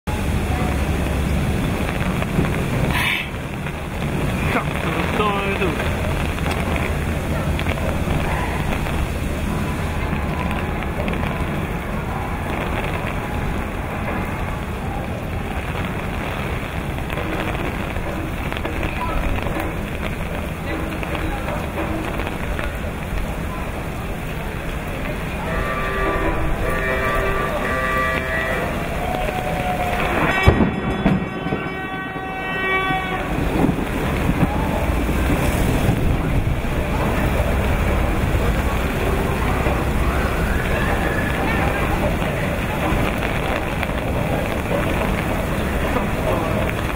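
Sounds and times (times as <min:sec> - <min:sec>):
heavy rain on cobbled street: 0:00.0 - 0:46.9
slow vehicles rumbling: 0:00.0 - 0:46.9
steam whistle blast: 0:25.4 - 0:33.4.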